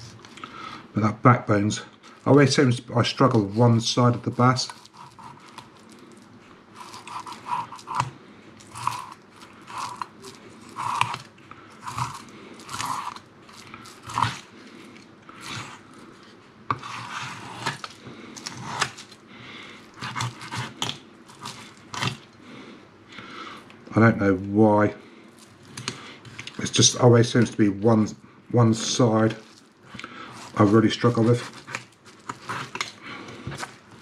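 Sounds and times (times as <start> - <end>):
knife cutting through fish bones: 4.6 - 5.9, 6.8 - 14.5, 15.4 - 15.9, 16.7 - 19.2, 20.0 - 22.3, 30.3 - 34.0.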